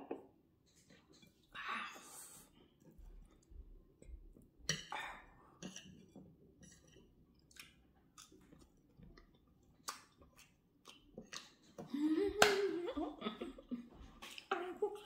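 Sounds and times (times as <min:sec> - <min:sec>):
mouth chewing sounds: 0:07.4 - 0:11.9.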